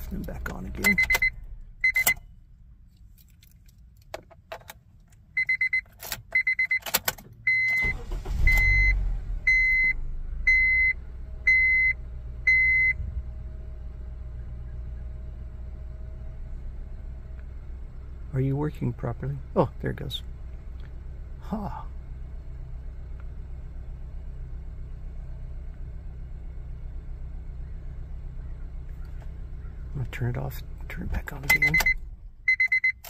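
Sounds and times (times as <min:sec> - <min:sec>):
car engine starting and idling: 0:00.0 - 0:33.0
car key clicks: 0:00.2 - 0:02.3, 0:02.9 - 0:08.1, 0:31.4 - 0:33.0.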